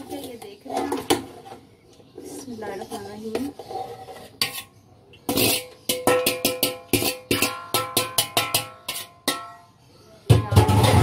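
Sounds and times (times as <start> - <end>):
metal clanks on pot rim: 5.3 - 9.7.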